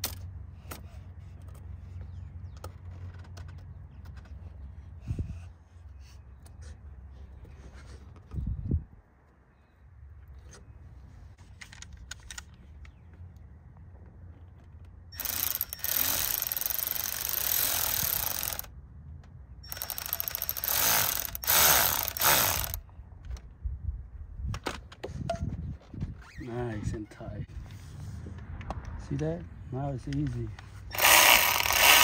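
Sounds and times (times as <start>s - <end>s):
cordless ratchet running: 15.2s - 18.7s, 19.6s - 22.8s, 30.9s - 32.0s.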